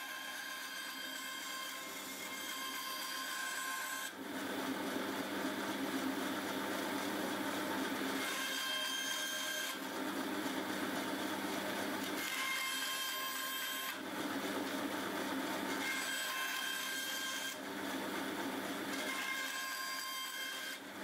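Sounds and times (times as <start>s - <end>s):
saw blade cutting wood: 0.0s - 4.2s, 8.2s - 9.8s, 12.0s - 14.0s, 15.7s - 17.6s, 18.9s - 20.8s.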